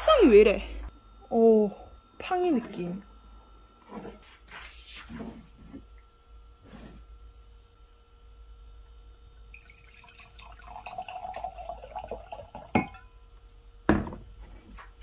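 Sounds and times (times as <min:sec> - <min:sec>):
wine pouring into glass: 0:09.5 - 0:13.0
bottle knocking on table: 0:13.9 - 0:14.2.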